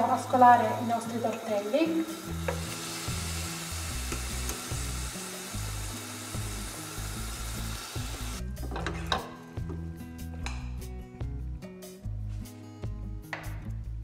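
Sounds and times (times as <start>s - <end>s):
background music: 0.0s - 14.0s
pasta sizzling in hot oil: 0.2s - 8.4s.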